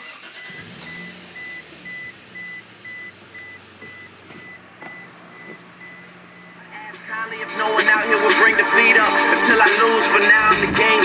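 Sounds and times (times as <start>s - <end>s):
high electronic beeps: 0.3s - 6.7s.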